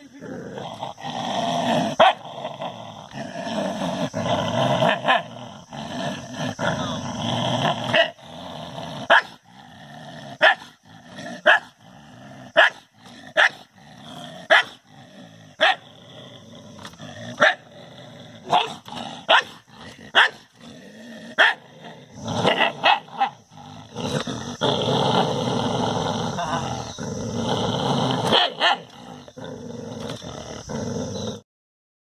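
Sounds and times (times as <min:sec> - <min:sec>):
dog growling: 0:00.0 - 0:31.4
dog barking: 0:02.0 - 0:02.2, 0:09.1 - 0:09.4, 0:10.4 - 0:10.7, 0:11.4 - 0:11.7, 0:12.6 - 0:12.8, 0:13.4 - 0:13.6, 0:14.5 - 0:14.8, 0:15.6 - 0:15.8, 0:17.4 - 0:17.6, 0:18.4 - 0:20.4, 0:21.4 - 0:21.6, 0:22.5 - 0:23.4, 0:28.3 - 0:28.9.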